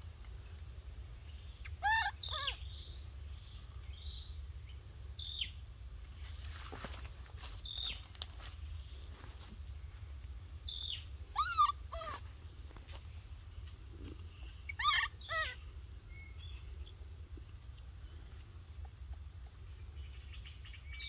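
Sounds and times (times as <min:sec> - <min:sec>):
faint bird chirp: 0:00.2 - 0:21.0
baby monkey high calls: 0:01.6 - 0:02.9, 0:10.8 - 0:12.4, 0:14.6 - 0:15.7.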